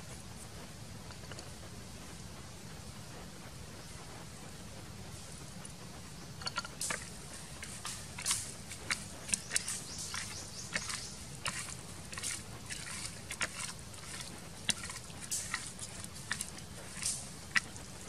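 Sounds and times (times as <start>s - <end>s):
small irregular clicks: 1.0s - 1.5s, 5.2s - 18.0s
wet squishes of meat: 7.6s - 18.0s.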